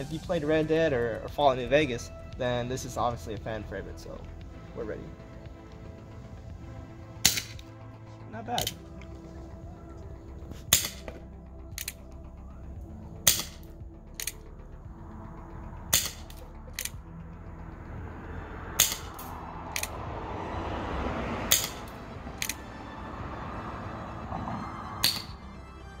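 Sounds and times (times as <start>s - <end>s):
revolver shots: 7.2s - 7.7s, 10.5s - 11.2s, 13.2s - 14.4s, 15.9s - 17.0s, 18.8s - 20.0s, 21.5s - 22.6s, 25.0s - 25.4s.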